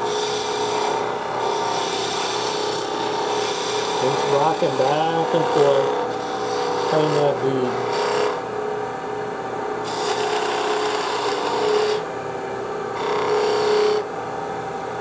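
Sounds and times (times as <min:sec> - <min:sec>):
gouge shaving wood: 0:00.0 - 0:08.4, 0:09.9 - 0:12.1, 0:13.0 - 0:14.0
lathe humming: 0:00.0 - 0:15.0.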